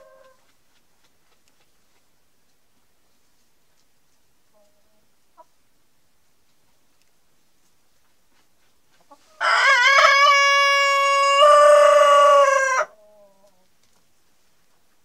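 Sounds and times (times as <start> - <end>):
rooster crowing: 9.4 - 13.0.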